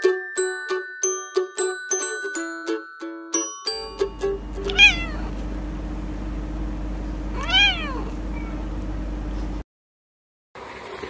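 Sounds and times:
steady low hum: 4.0s - 9.6s
cat meowing: 4.6s - 5.4s, 7.4s - 8.7s.

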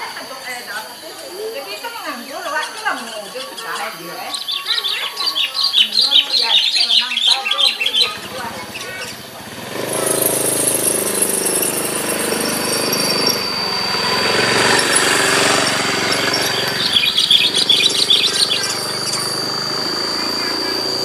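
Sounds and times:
birds chirping: 0.0s - 21.0s
thin high whine: 0.0s - 21.0s
engine hum: 7.8s - 21.0s.

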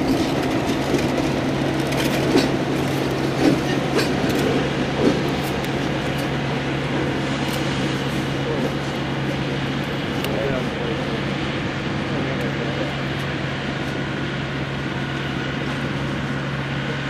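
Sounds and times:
wheels clicking over rail joints: 0.0s - 6.4s
diesel locomotive engine drone: 0.0s - 17.0s.

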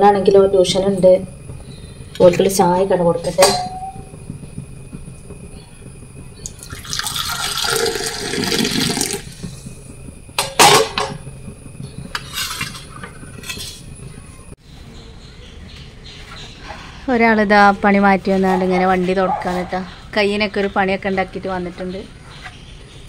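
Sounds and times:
tea pouring into glass: 6.5s - 9.4s.

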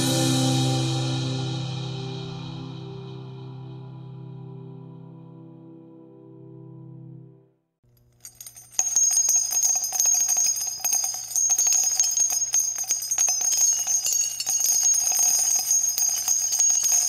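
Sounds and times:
bells jingling: 8.0s - 17.0s.

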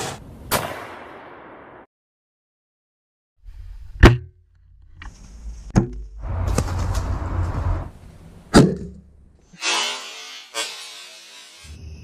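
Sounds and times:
bow shot crack: 0.5s - 1.5s
low microphone rumble: 5.4s - 8.5s.

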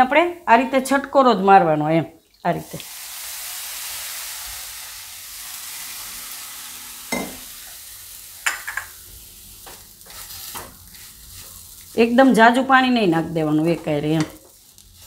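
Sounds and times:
batter sizzling in pan: 2.6s - 15.0s
spatula scraping pan: 9.6s - 12.1s.

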